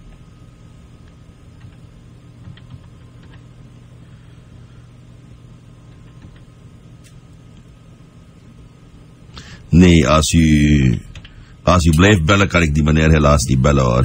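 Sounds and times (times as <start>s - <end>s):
electrical hum: 0.0s - 14.0s.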